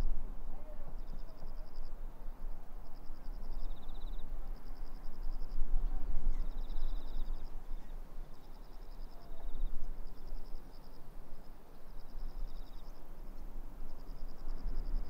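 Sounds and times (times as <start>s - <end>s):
low background noise: 0.0s - 15.0s
insects trilling: 2.8s - 5.6s, 6.3s - 15.0s.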